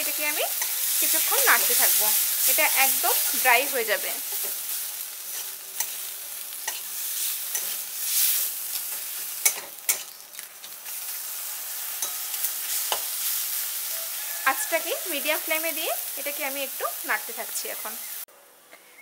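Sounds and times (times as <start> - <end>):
paste sizzling in oil: 0.0 - 18.3
spatula scraping a pan: 4.3 - 10.2.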